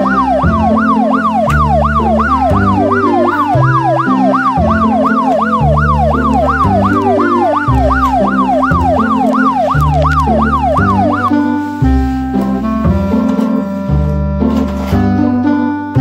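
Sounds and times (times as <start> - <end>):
electronic siren wailing: 0.0 - 11.6
background music with bass line: 0.0 - 16.0.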